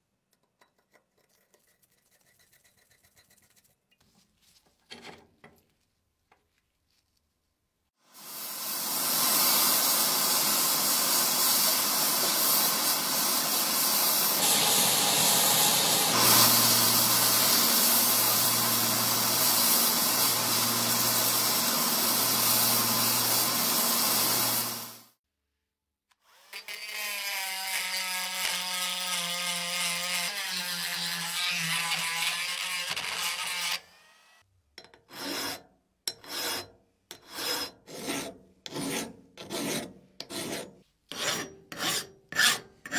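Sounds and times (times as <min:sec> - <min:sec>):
abrasive power tool noise: 0:08.2 - 0:25.2, 0:26.2 - 0:34.5
power tool with falling pitch: 0:12.7 - 0:25.1, 0:29.0 - 0:34.4
hand filing strokes: 0:35.1 - 0:35.6, 0:36.2 - 0:42.9.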